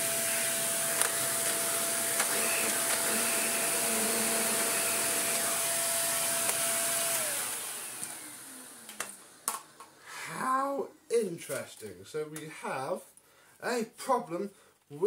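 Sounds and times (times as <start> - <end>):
vacuum cleaner motor whining: 0.0 - 9.9.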